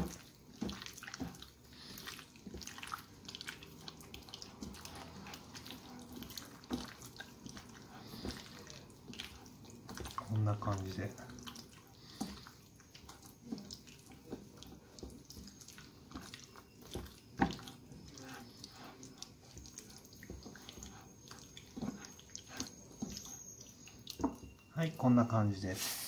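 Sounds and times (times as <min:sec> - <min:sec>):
hands kneading wet chicken: 0:00.0 - 0:25.8.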